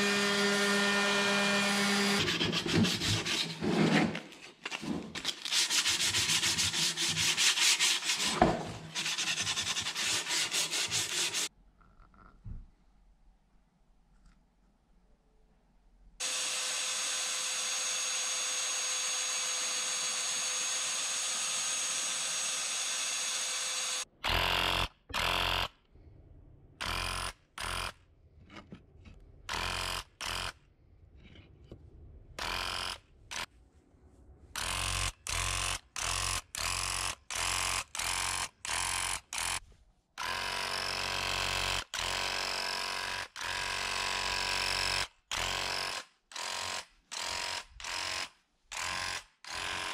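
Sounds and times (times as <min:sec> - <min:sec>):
electric drill mixing paint: 0:06.0 - 0:11.5, 0:16.2 - 0:25.7, 0:34.6 - 0:39.6, 0:40.2 - 0:49.9.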